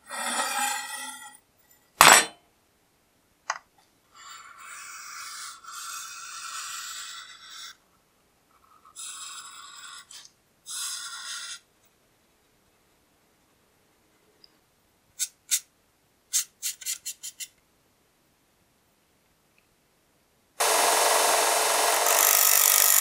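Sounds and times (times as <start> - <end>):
steel blade sliding over wood: 0.1 - 1.4
marker squeaking on steel: 8.9 - 11.7, 15.2 - 15.7, 16.3 - 17.6.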